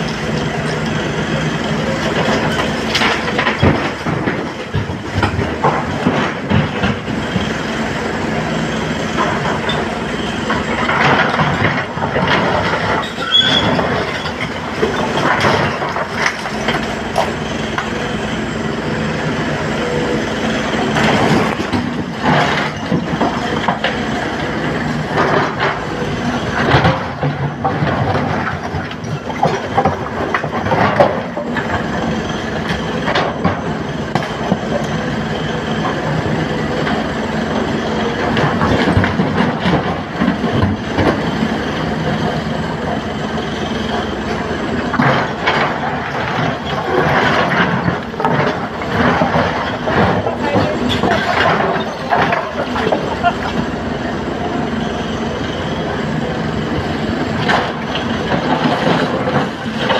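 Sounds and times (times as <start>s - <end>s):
excavator diesel engine running: 0.0s - 59.9s.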